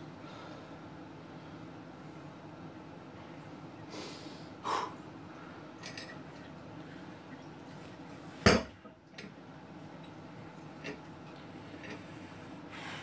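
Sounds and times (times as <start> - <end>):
room hiss: 0.0 - 5.8.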